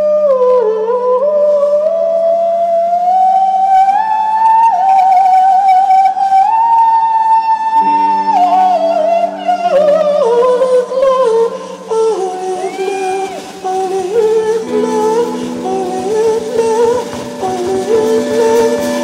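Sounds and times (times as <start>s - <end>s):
high sliding melody line: 7.8s - 19.0s.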